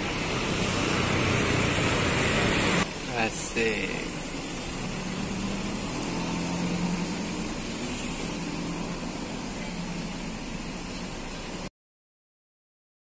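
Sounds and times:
car driving past: 0.0 - 2.9, 4.0 - 11.3
low engine hum: 0.0 - 11.7
road traffic noise: 0.0 - 11.7.

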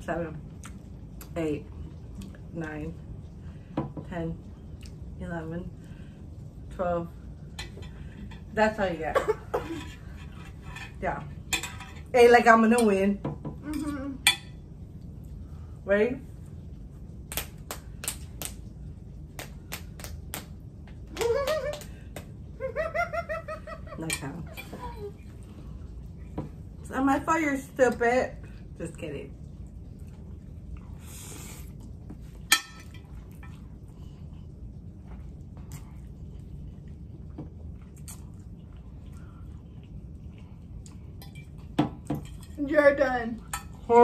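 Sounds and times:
woman's voice: 8.5 - 9.4, 11.0 - 11.3, 12.1 - 13.9, 15.8 - 16.2, 23.9 - 25.1, 26.8 - 29.3, 42.6 - 44.0
woman giggling: 21.1 - 21.9, 22.6 - 25.2
soft chewing: 29.5 - 42.6.

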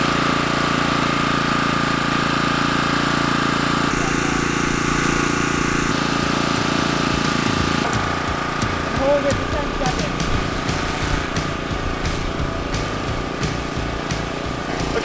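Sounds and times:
machinery humming: 3.7 - 15.0.

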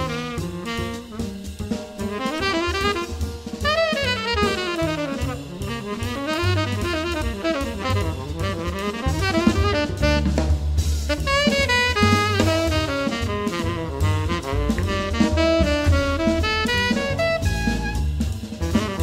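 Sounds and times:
bass: 0.0 - 19.0
drum kit: 0.0 - 19.0
saxophone solo: 0.0 - 19.0.

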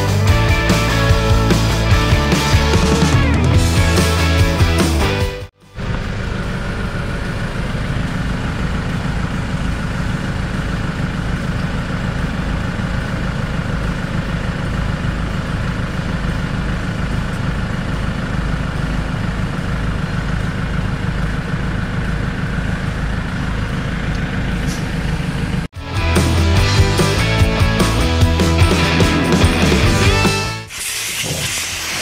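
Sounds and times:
air compressor running: 0.0 - 32.0
air hissing: 30.6 - 32.0.

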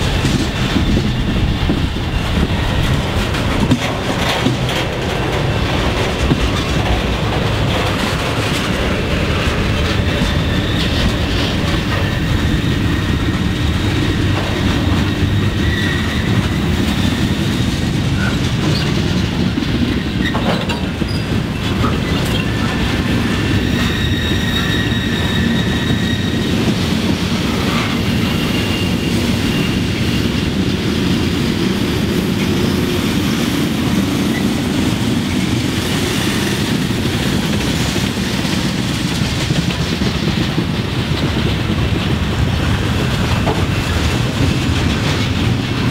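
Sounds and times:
train wheels rumbling on rail: 0.0 - 45.9
high-pitched wheel squeal: 15.1 - 17.2, 23.4 - 26.7, 27.5 - 30.2.

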